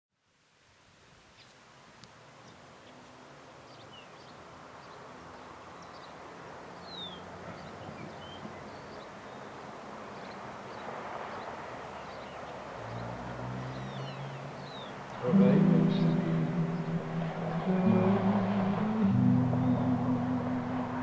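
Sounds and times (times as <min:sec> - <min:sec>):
steady hushing background noise: 0:14.5 - 0:21.0.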